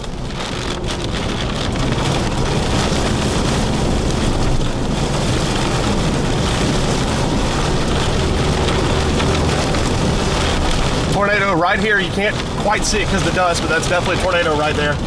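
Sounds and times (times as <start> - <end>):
engine and road drone: 0.0 - 15.0
rain on a car: 0.0 - 15.0
wind on a car: 0.0 - 15.0.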